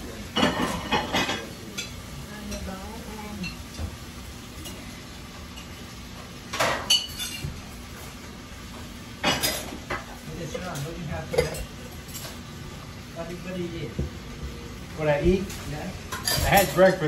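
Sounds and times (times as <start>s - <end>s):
cutlery and dishes clinking: 0.3s - 2.6s, 6.5s - 7.6s, 9.2s - 12.4s, 15.4s - 17.0s.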